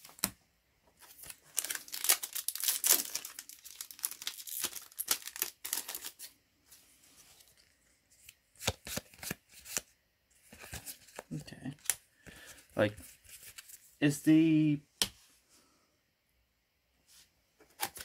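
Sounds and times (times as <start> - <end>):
foil wrapper tearing and crinkling: 1.2 - 6.3.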